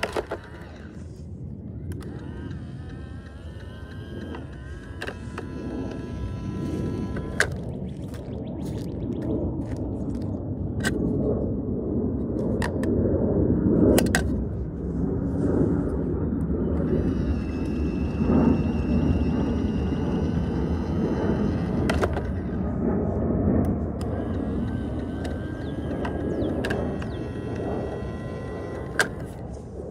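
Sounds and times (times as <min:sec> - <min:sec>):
plastic toy clicks and clacks: 0:00.0 - 0:01.0, 0:01.9 - 0:08.1, 0:20.2 - 0:22.6, 0:24.0 - 0:29.4.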